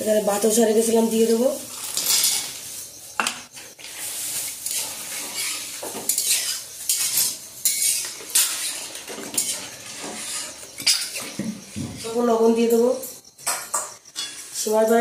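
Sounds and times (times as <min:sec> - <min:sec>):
metal ladle scraping a pan: 0:03.8 - 0:12.2.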